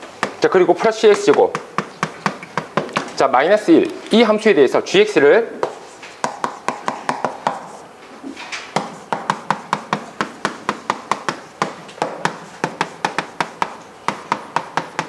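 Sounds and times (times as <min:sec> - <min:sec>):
chalk clicking on chalkboard: 0:00.2 - 0:03.2, 0:05.6 - 0:07.9, 0:08.6 - 0:15.0.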